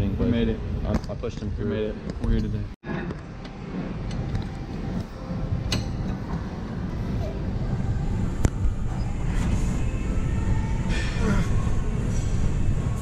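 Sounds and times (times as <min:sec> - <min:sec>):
low rumble of room noise: 0:03.2 - 0:13.0.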